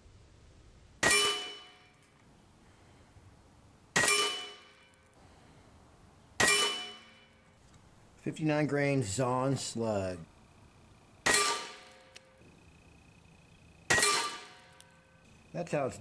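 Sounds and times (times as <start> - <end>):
air rifle shots: 1.0 - 1.9, 3.9 - 4.9, 6.4 - 7.3, 11.2 - 12.1, 13.9 - 14.8
metallic target clang: 1.0 - 1.9, 3.9 - 5.0, 6.4 - 7.4, 11.2 - 12.1, 13.9 - 14.8.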